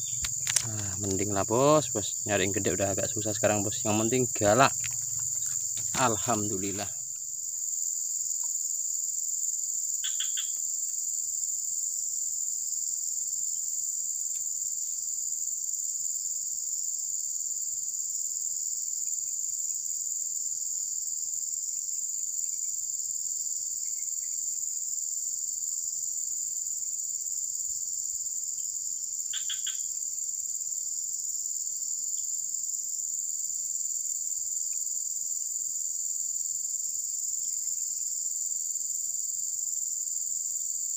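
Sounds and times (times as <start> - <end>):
insect chorus drone: 0.0 - 40.9.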